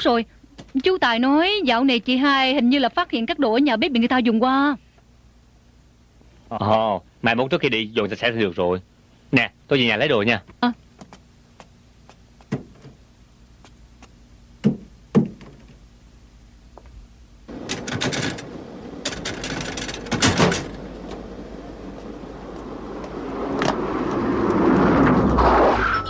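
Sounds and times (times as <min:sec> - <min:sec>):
sharp knocks: 0:12.4 - 0:13.0, 0:14.6 - 0:15.8
wooden door clattering: 0:12.5 - 0:13.0, 0:14.6 - 0:15.8, 0:17.5 - 0:21.2
car approaching: 0:17.5 - 0:26.0.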